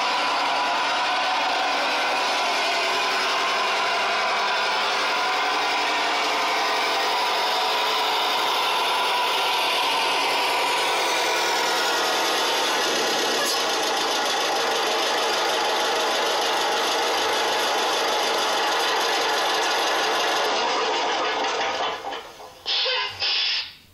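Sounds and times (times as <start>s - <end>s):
high whine: 0.0s - 15.5s
sampled truck diesel engine sound: 0.0s - 23.7s.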